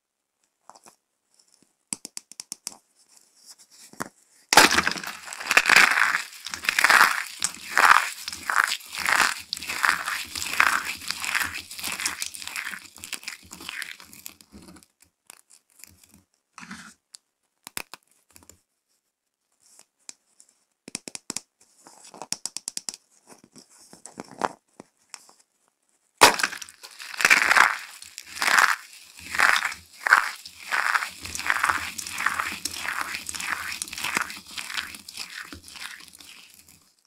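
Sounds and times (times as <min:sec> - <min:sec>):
soap ball crushed loudly: 0:04.5 - 0:14.3, 0:26.2 - 0:36.8
soap pieces crunching in hands: 0:04.6 - 0:14.4, 0:26.2 - 0:36.9
fingers clicking through soap flakes: 0:04.6 - 0:14.5, 0:17.6 - 0:18.5, 0:26.2 - 0:37.0.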